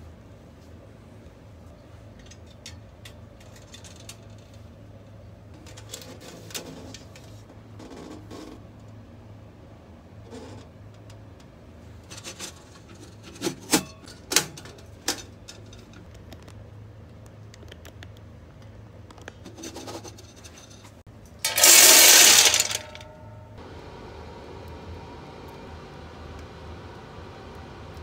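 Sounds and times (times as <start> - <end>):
low steady hum: 20.2 - 28.0.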